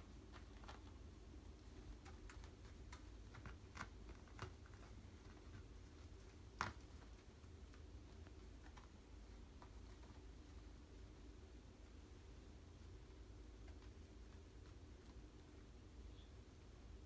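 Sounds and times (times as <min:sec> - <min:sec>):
kittens' paws tapping: 0:00.0 - 0:16.0.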